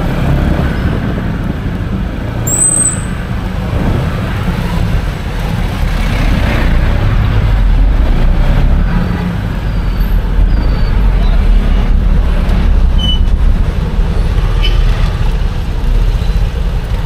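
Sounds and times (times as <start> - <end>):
road traffic rumble: 0.0 - 17.0
high-pitched squeak: 2.5 - 3.2.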